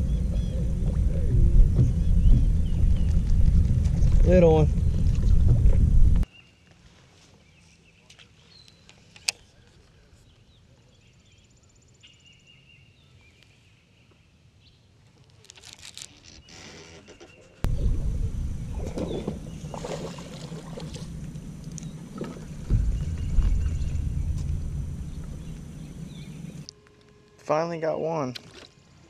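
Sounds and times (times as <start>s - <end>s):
wind rumble on microphone: 0.0s - 6.2s, 17.7s - 26.7s
knock on boat: 1.6s - 3.0s, 17.7s - 26.1s
water splashing: 17.7s - 26.7s.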